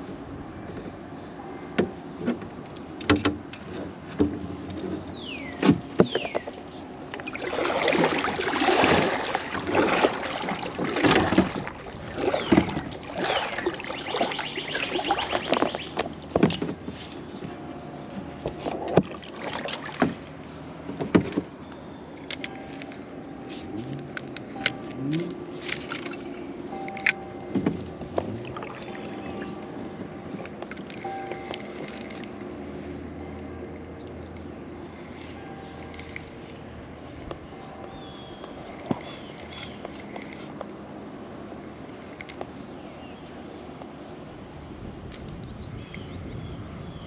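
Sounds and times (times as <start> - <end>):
paddle water splashes: 6.0 - 21.2, 25.4 - 32.6.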